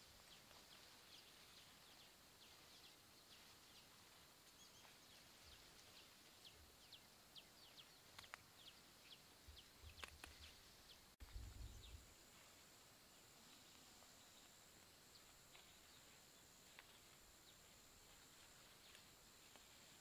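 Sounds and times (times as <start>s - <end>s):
bird chirping: 0.0s - 12.2s
sharp clicks: 8.1s - 8.5s, 9.9s - 10.5s.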